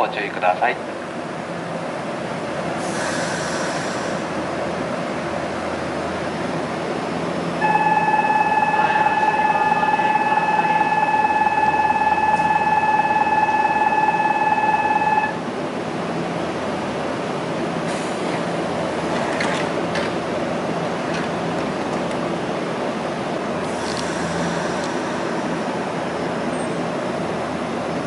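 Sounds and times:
electric train humming: 0:00.5 - 0:28.0
train doors closing: 0:02.2 - 0:15.6, 0:16.7 - 0:28.0
station departure buzzer: 0:07.6 - 0:15.4.

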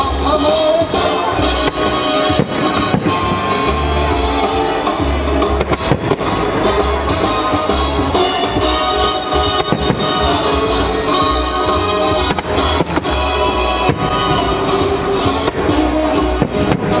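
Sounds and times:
instrumental music with drums: 0:00.6 - 0:17.0
fireworks shells bursting: 0:01.5 - 0:07.4, 0:08.1 - 0:10.8, 0:12.2 - 0:17.0.

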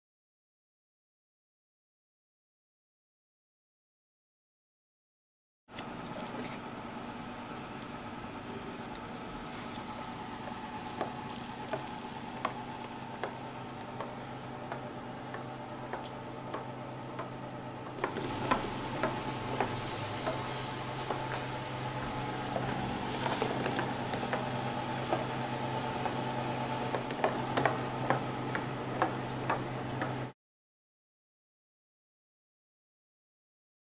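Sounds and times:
hobby motor spinning propeller: 0:08.8 - 0:30.3.

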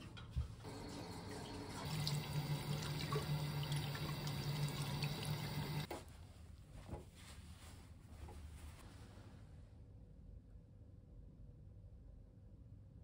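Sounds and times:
tap water running into a sink: 0:00.6 - 0:05.9.

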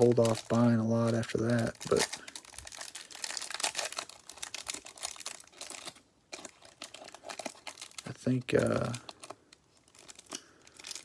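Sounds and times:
plastic wrapper crinkling: 0:00.0 - 0:11.0.

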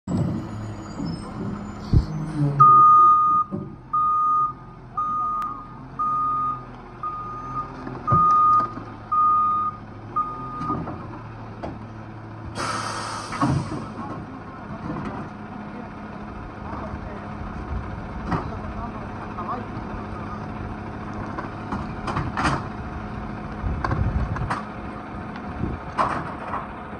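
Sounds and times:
diesel engine running: 0:00.1 - 0:26.9
truck reverse alarm beeping: 0:02.6 - 0:10.9
air brakes hissing: 0:12.6 - 0:14.0.

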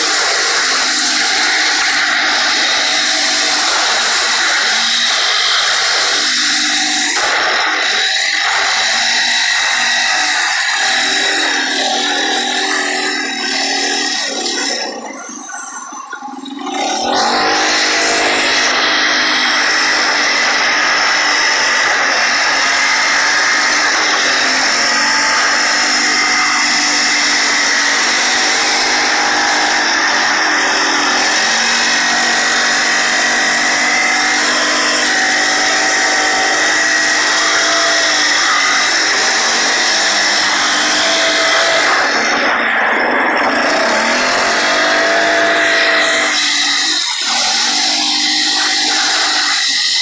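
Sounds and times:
quad bike engine at speed: 0:00.0 - 0:50.0.

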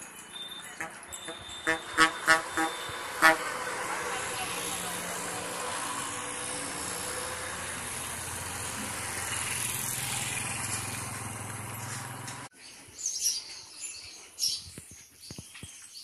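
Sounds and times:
road noise: 0:00.0 - 0:12.5
vehicle engine running: 0:00.8 - 0:12.5.

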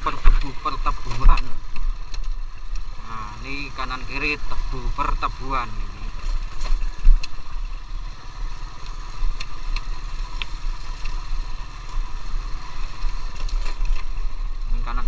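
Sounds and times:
scooter engine running: 0:00.0 - 0:15.0.

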